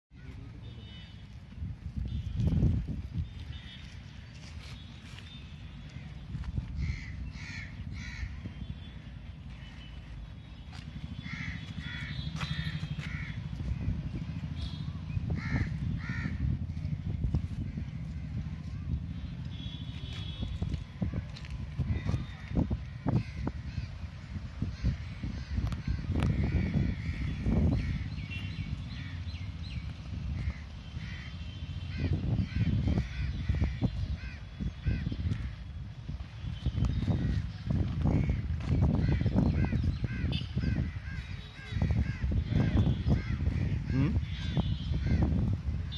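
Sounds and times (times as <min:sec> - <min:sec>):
wind on microphone: 0:01.3 - 0:09.2, 0:11.2 - 0:45.9
crows cawing: 0:06.7 - 0:08.5, 0:11.1 - 0:13.6, 0:15.4 - 0:16.5, 0:21.9 - 0:29.4, 0:30.4 - 0:35.6, 0:38.1 - 0:45.3.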